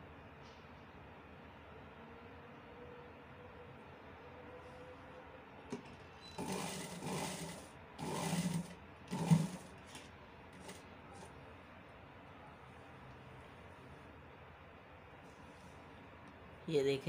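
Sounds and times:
sewing machine stitching: 0:06.3 - 0:10.8.

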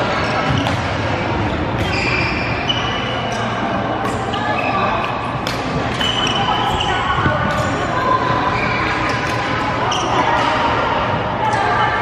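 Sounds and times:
echoing din of other courts: 0:00.0 - 0:12.0
shoes squeaking on floor: 0:01.8 - 0:03.4.

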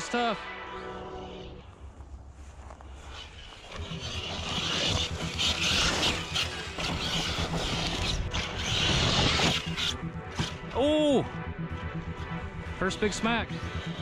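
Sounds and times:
toy truck rattling over dirt: 0:03.1 - 0:10.5.

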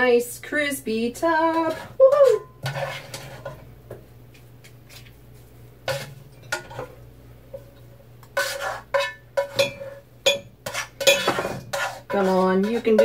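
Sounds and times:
metal spoon scraping saucepan: 0:01.3 - 0:03.6, 0:08.3 - 0:13.0.

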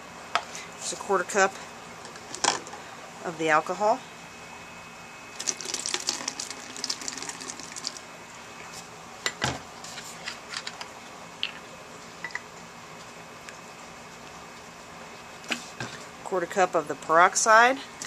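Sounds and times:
liquid pouring through funnel: 0:05.4 - 0:08.0.

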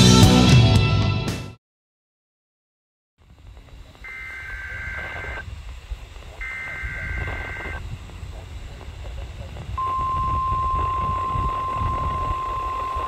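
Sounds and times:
radio static: 0:03.2 - 0:13.0
steady alarm tone: 0:03.3 - 0:13.0
buzzing two-pitch digital tone: 0:03.4 - 0:13.0.

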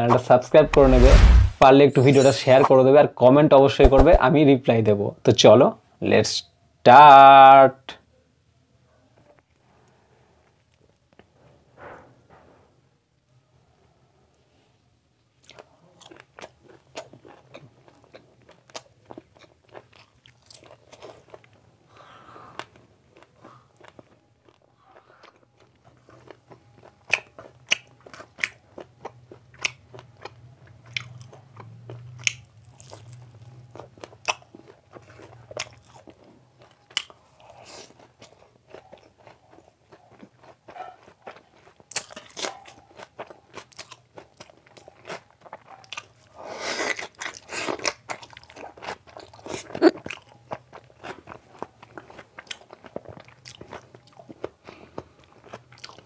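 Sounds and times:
person chewing with wet mouth smacks: 0:22.5 - 0:56.0.

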